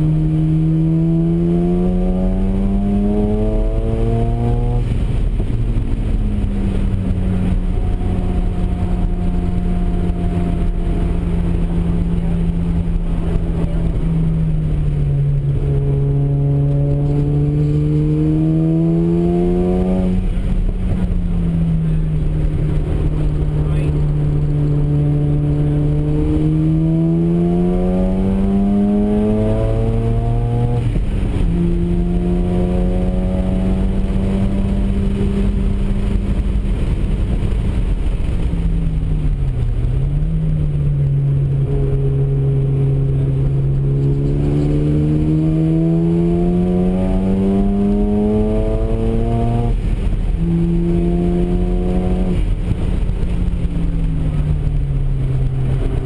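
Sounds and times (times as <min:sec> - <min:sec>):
rotary engine accelerating: 0:00.0 - 0:56.0.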